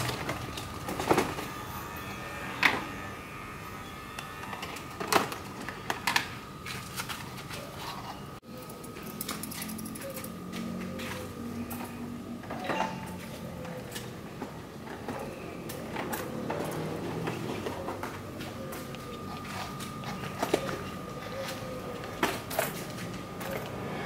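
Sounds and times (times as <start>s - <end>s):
electric hair clipper whining: 0.0s - 6.7s.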